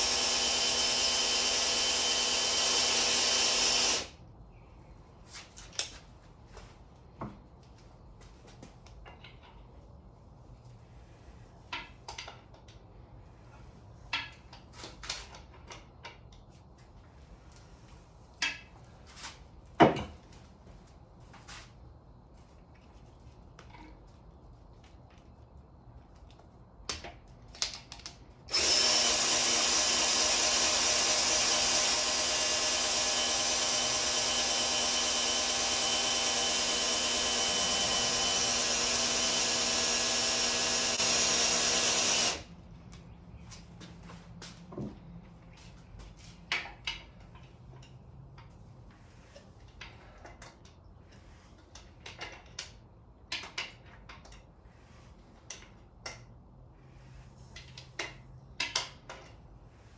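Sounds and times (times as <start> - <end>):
cordless drill running: 0.0 - 4.2, 28.5 - 42.5
tool handling clicks and knocks: 8.5 - 9.8, 11.7 - 12.9, 14.0 - 16.6, 19.7 - 20.4, 26.2 - 28.3, 42.9 - 54.5, 55.4 - 56.4, 57.5 - 59.5.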